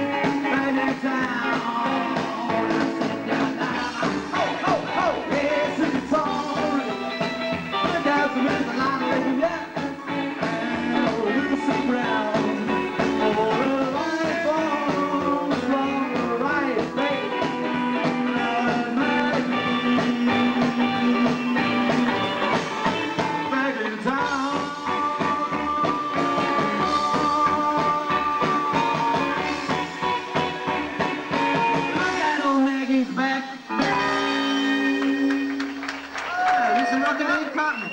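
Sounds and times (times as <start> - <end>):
live rock and roll band: 0.0 - 37.9.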